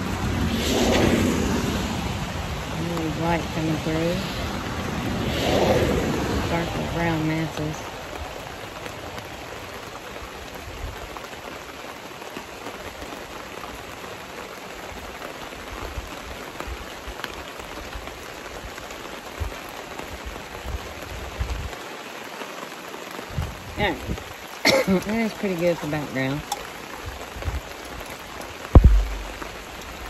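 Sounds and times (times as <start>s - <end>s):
rain on a canopy tent: 0.0s - 30.0s
low rumbles: 25.0s - 30.0s.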